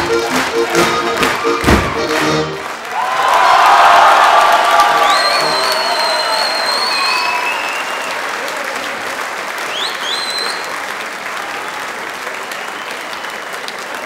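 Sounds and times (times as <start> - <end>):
audience applauding: 0.0 - 14.0
high whistle: 5.0 - 8.2, 9.7 - 10.7.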